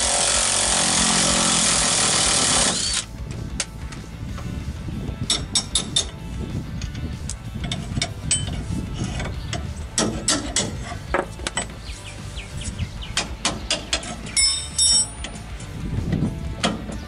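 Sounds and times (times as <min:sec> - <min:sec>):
metal tool clinks: 0:14.0 - 0:15.5.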